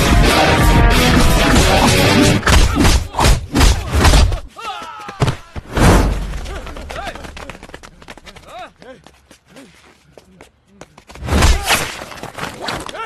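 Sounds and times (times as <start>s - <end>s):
people shouting and grunting: 0.2s - 9.9s.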